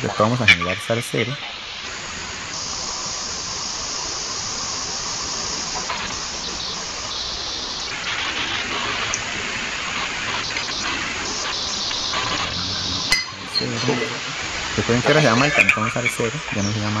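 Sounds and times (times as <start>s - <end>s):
steady background hiss: 0.0s - 17.0s
faint clicks: 9.0s - 12.5s.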